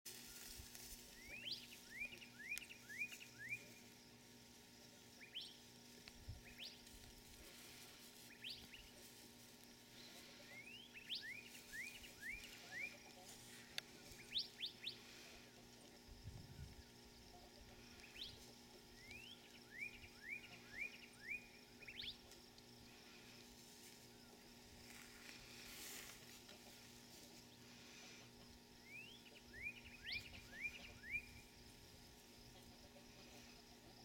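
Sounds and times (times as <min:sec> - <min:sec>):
faint bird chirps: 0:00.1 - 0:03.9, 0:09.9 - 0:15.1, 0:28.8 - 0:31.6.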